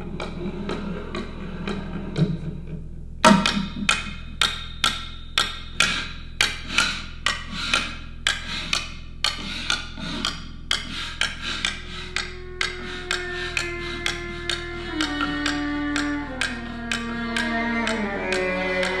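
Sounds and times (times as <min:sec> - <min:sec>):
struck percussion knocks: 0:00.0 - 0:09.5.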